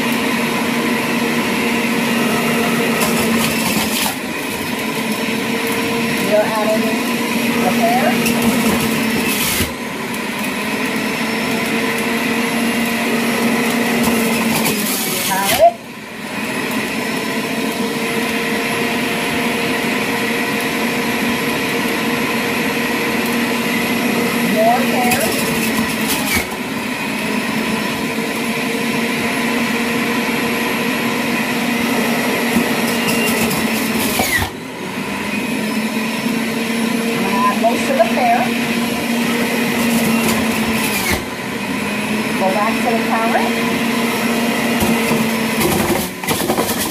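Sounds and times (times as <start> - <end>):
juicer motor whining: 0.0 - 46.9.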